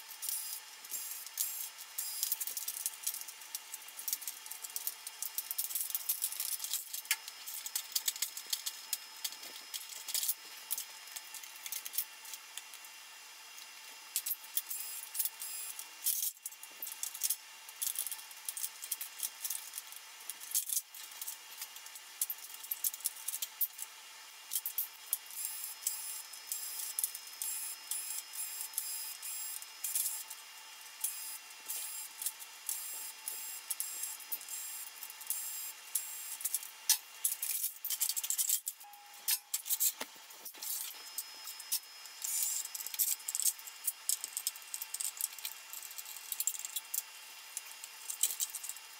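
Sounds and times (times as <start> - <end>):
tools and parts clicking and rattling: 0.1 - 12.8, 13.6 - 23.9, 24.5 - 30.4, 31.0 - 48.9
faint steady high tone: 38.8 - 39.8.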